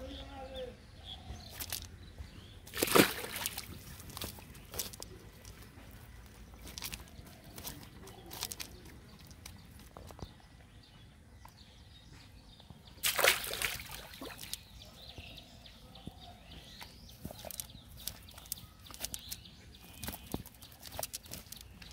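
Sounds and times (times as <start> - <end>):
net rustling with wet clicks: 1.4 - 1.9, 2.7 - 10.2, 13.0 - 14.8, 16.8 - 21.9
loud wet slap: 2.7 - 3.8, 13.0 - 14.6.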